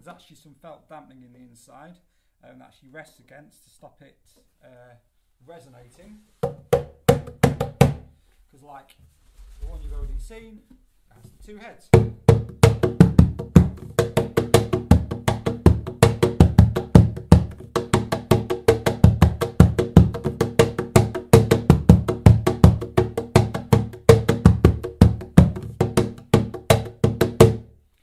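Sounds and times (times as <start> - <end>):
cajon played by hand: 6.5 - 8.0, 12.0 - 27.7.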